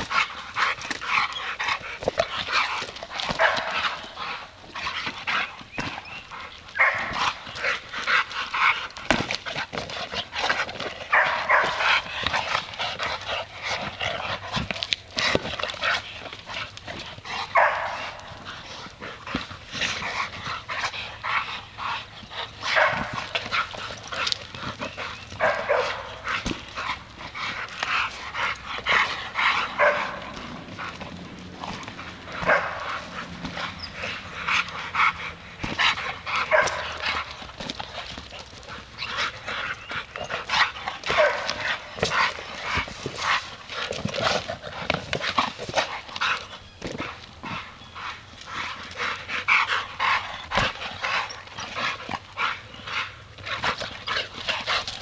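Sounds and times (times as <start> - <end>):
dogs making excited noises: 0.0 - 55.0.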